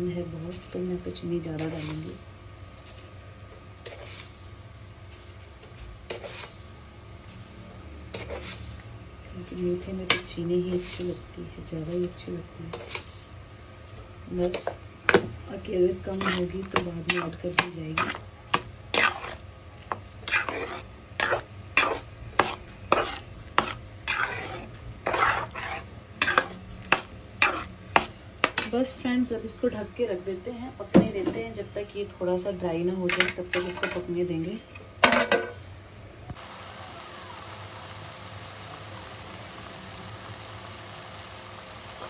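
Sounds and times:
spoon scraping metal pan: 6.1 - 6.6, 16.0 - 28.7.

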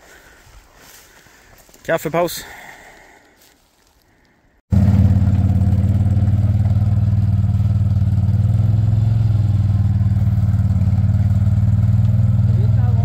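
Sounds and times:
quad bike engine running: 4.7 - 13.0.

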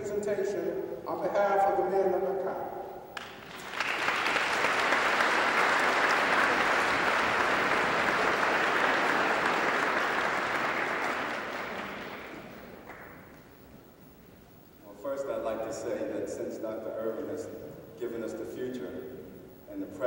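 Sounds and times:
audience applauding: 3.2 - 13.4.

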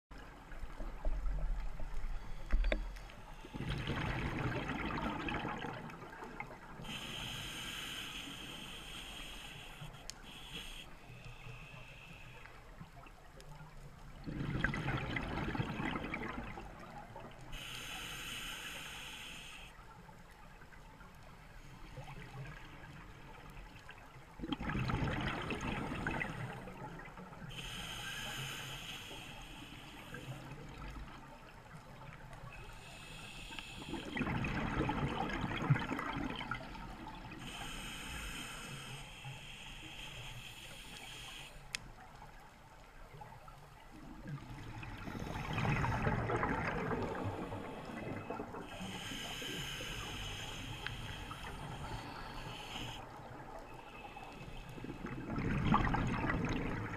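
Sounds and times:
exhaled bubbles gurgling: 3.5 - 7.3, 14.0 - 17.6, 24.3 - 27.6, 32.6 - 37.8, 43.1 - 56.9
regulator hiss on inhalation: 6.8 - 12.6, 17.5 - 19.8, 27.5 - 30.6, 32.6 - 34.2, 37.4 - 41.7, 47.2 - 53.0.

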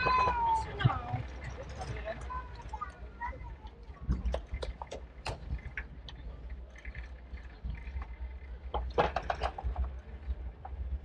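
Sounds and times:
bicycle rumbling on street: 0.0 - 11.0
bicycle clicks and rattles: 4.1 - 10.9.

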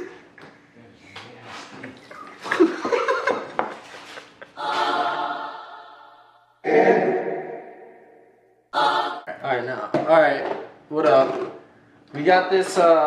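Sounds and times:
men laughing hard: 2.4 - 4.8
choir-like musical chords: 4.5 - 9.6.

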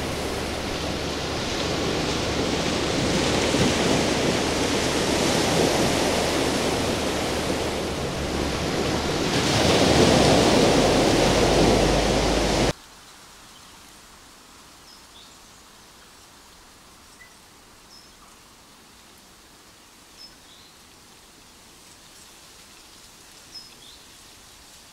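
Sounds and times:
sea surf rushing: 0.0 - 12.8.

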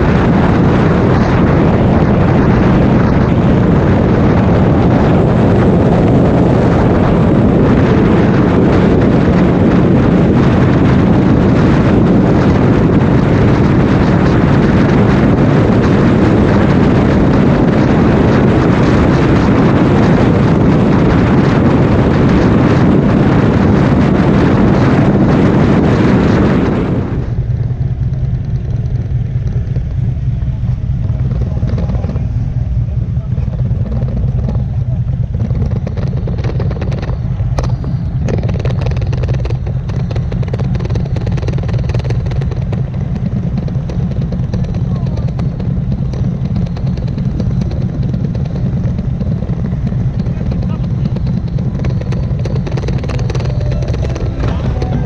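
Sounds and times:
motorcycle engine droning: 0.0 - 55.0
wind rush on microphone: 0.0 - 55.0
motorcycle engine idling: 27.2 - 55.0.

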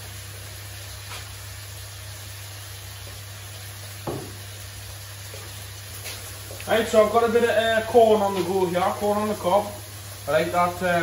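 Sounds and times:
chicken frying in a wok: 0.0 - 11.0.

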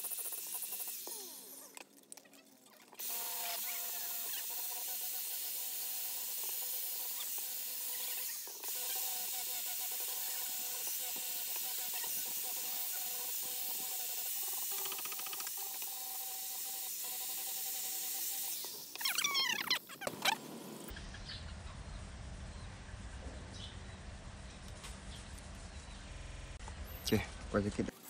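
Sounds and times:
angle grinder grinding steel: 0.0 - 1.7, 3.0 - 20.9.

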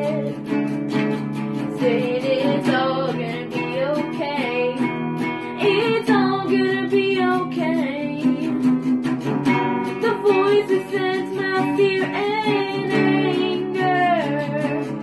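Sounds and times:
person singing slow song: 0.0 - 0.4, 10.0 - 15.0
strummed acoustic guitar: 0.0 - 15.0.

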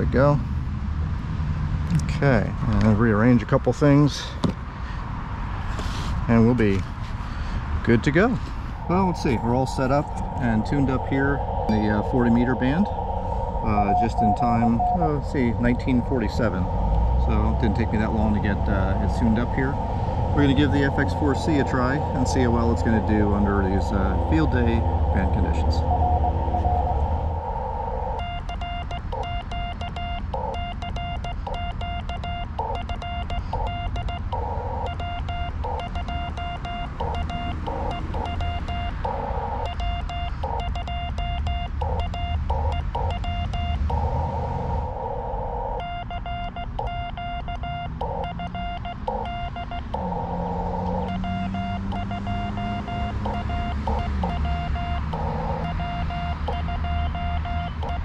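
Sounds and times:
radio band noise hiss: 5.7 - 28.2
morse code tone: 7.9 - 58.0.

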